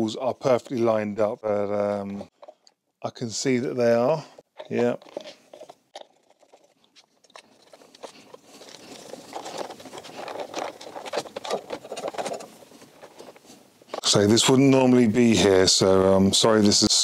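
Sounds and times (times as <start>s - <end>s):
scraping: 3.9s - 14.8s.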